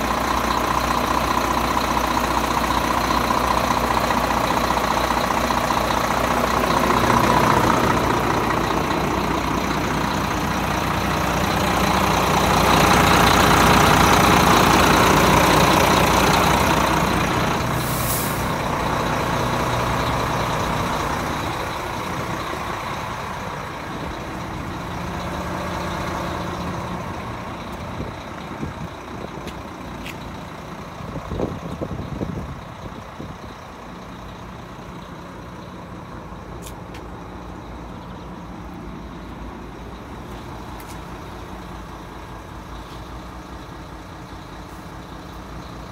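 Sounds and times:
diesel truck engine idling: 0:00.0 - 0:45.9.

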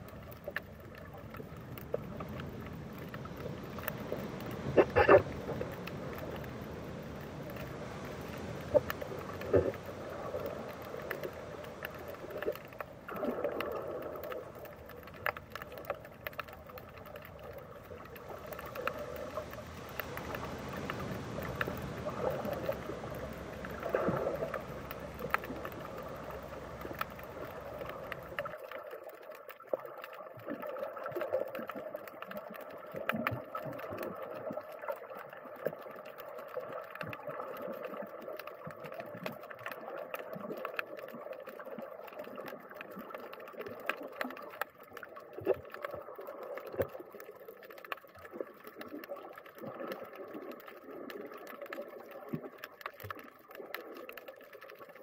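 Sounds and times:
clicks and crackles: 0:00.0 - 0:55.0
muffled underwater water noise: 0:00.0 - 0:55.0.

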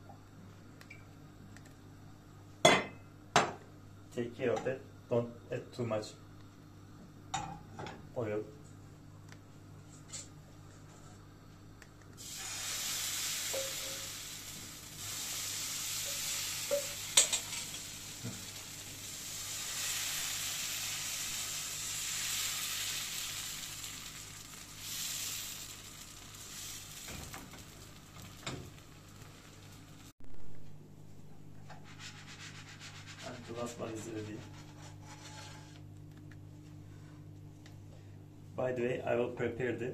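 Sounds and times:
batter sizzling in frying pan: 0:12.2 - 0:30.1.

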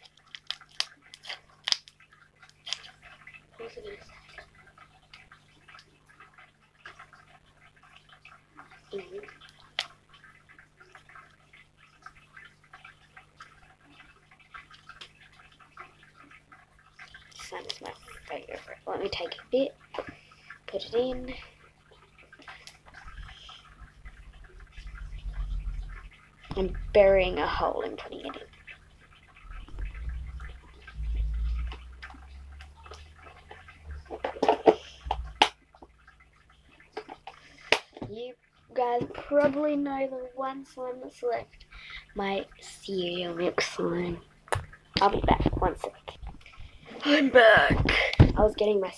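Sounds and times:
slime squelching: 0:00.0 - 0:07.2, 0:08.6 - 0:38.0
low handling rumble: 0:23.8 - 0:28.6, 0:29.2 - 0:34.3.

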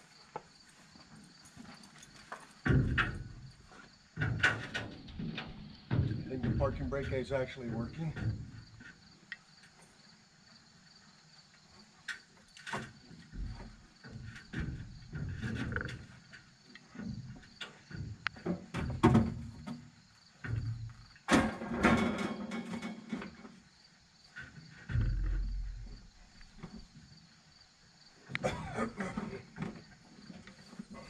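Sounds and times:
crickets chirping: 0:00.0 - 0:31.0
metal door knocks and clanks: 0:02.6 - 0:03.6, 0:04.2 - 0:08.7, 0:17.9 - 0:19.8, 0:20.5 - 0:23.3.

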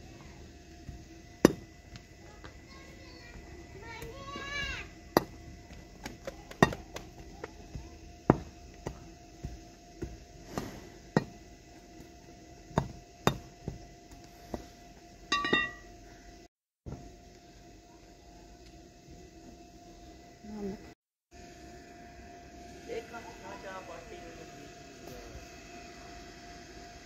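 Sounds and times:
metal bar striking hard earth: 0:15.3 - 0:15.9.

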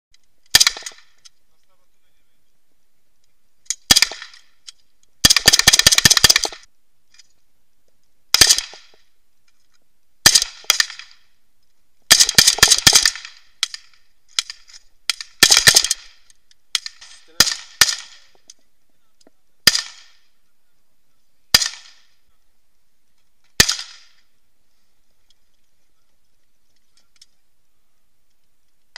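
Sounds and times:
single gunshots: 0:00.5 - 0:01.2, 0:03.8 - 0:04.5, 0:05.2 - 0:06.7, 0:08.3 - 0:09.0, 0:10.2 - 0:11.2, 0:12.1 - 0:18.4, 0:19.6 - 0:20.2, 0:21.5 - 0:22.2, 0:23.6 - 0:24.2
automatic gunfire bursts: 0:05.2 - 0:06.6, 0:12.1 - 0:13.3.

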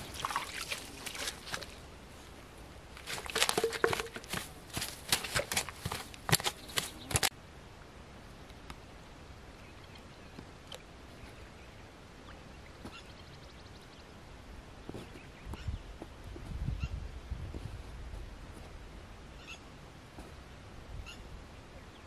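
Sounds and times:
fish net rustling among rocks: 0:00.0 - 0:02.3, 0:02.9 - 0:07.3.

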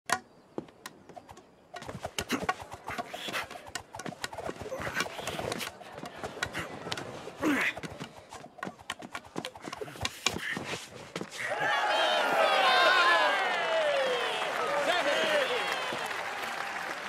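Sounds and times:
sharp knocks and clicks: 0:00.1 - 0:07.0
spectators shouting: 0:11.4 - 0:17.0.

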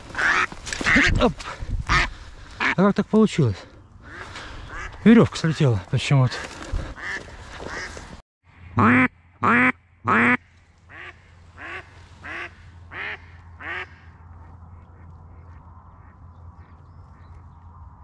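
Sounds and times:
hen duck quacking: 0:00.2 - 0:01.3, 0:01.9 - 0:02.8, 0:04.0 - 0:05.0, 0:06.9 - 0:08.0, 0:08.8 - 0:14.1.

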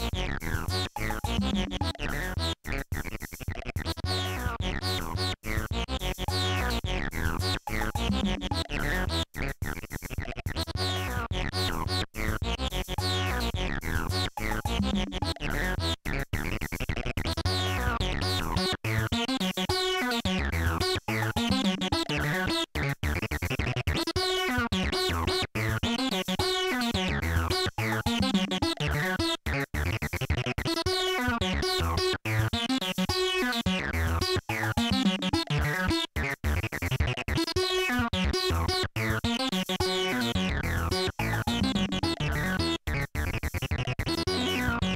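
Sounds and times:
analog synthesizer sweeping notes: 0:44.1 - 0:44.9.

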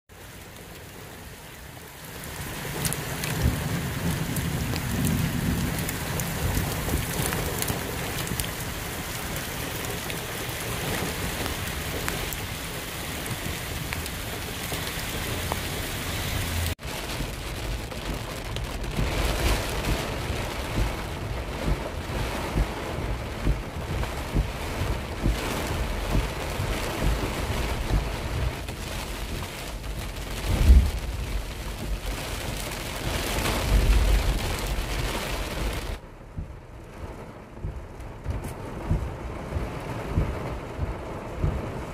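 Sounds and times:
heavy rain hissing: 0:00.2 - 0:24.2
running runoff water: 0:00.2 - 0:36.1
low uneven rumble: 0:12.7 - 0:41.9.

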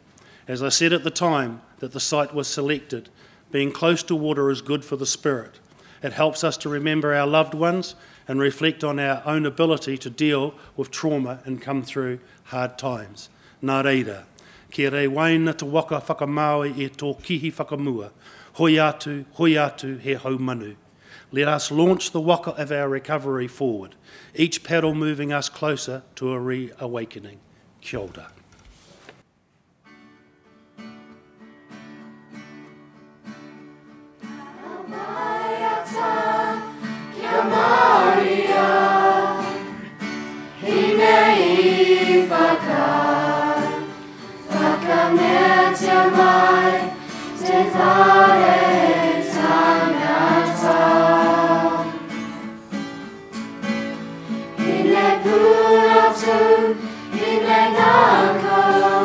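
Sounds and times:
children's choir singing: 0:34.3 - 0:39.9, 0:40.6 - 0:52.2, 0:54.6 - 0:59.0.

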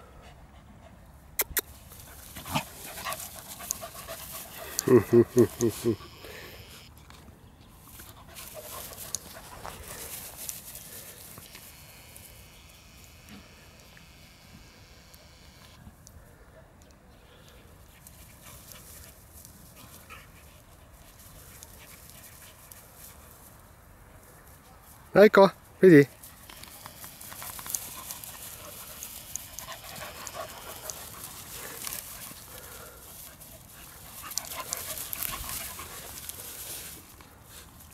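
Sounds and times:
small dogs panting: 0:00.0 - 0:06.8, 0:07.9 - 0:11.5, 0:17.4 - 0:23.5, 0:26.1 - 0:37.9
paws rustling through dry grass: 0:01.7 - 0:05.9, 0:07.0 - 0:12.3, 0:17.5 - 0:25.1, 0:26.1 - 0:37.9
soft ticks: 0:03.6 - 0:03.8, 0:29.0 - 0:31.1.

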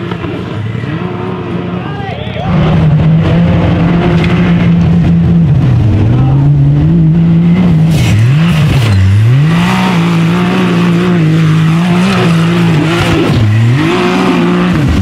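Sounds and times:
engine revving hard: 0:02.4 - 0:15.0.

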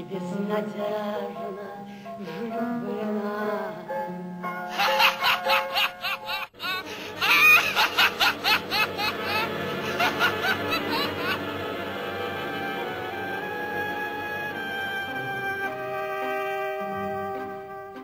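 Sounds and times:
soft background music: 0:00.0 - 0:18.0
person laughing: 0:04.7 - 0:11.5.

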